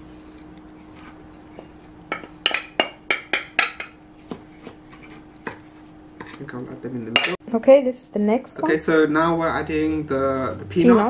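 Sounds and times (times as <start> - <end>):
faint steady hum: 0.0 - 11.0
spatula scraping ceramic bowl: 4.9 - 6.5.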